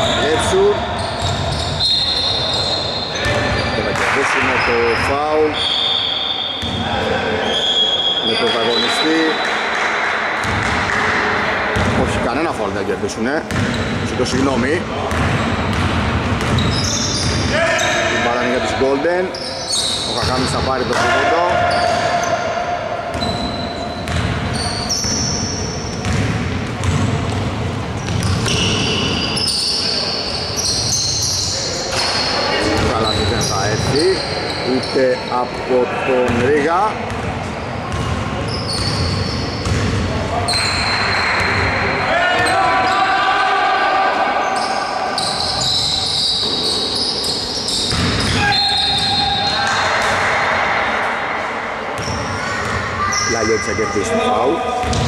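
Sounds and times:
sneakers squeaking on floor: 0.0s - 12.6s, 13.3s - 43.1s, 44.4s - 50.4s, 52.0s - 55.0s
basketball bouncing: 6.6s - 6.8s, 9.7s - 11.2s, 13.5s - 14.5s, 15.1s - 17.5s, 23.1s - 25.3s, 25.9s - 28.8s, 37.1s - 40.1s, 47.9s - 49.1s, 54.8s - 55.0s
players calling out: 40.2s - 55.0s.

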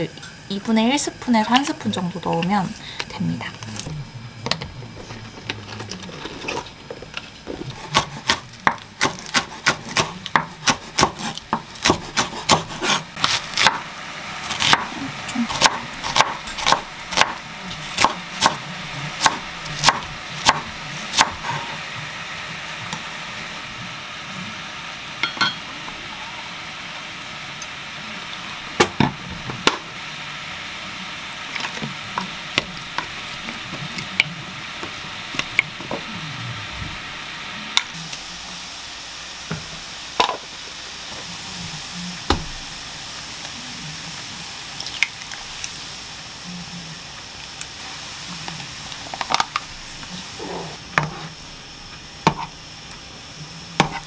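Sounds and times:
knife chopping on wooden board: 7.7s - 13.8s, 15.6s - 17.4s.

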